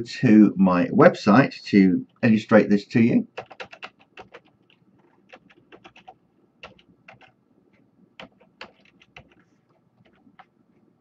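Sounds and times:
computer keyboard keystrokes: 3.4s - 7.4s, 8.2s - 10.5s.

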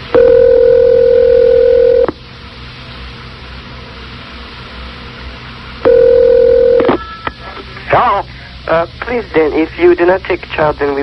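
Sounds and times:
phone line hiss: 0.0s - 2.2s, 5.8s - 8.2s
telephone ringback tone: 0.1s - 2.1s, 5.9s - 7.0s.

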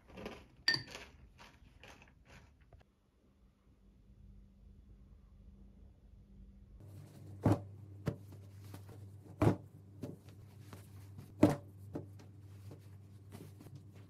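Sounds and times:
faint low hum: 2.3s - 14.0s.

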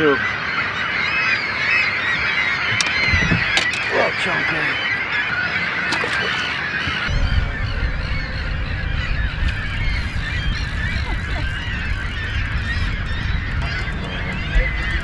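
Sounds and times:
flock of waterbirds calling: 0.0s - 15.0s
wind rumble on microphone: 2.3s - 3.8s, 6.6s - 15.0s.

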